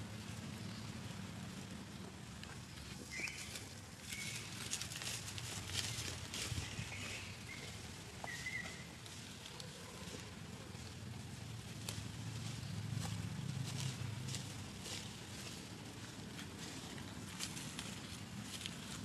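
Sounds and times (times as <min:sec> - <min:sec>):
dry leaves rustling and crackling: 0:00.0 - 0:19.0
steady low hum: 0:00.0 - 0:19.0.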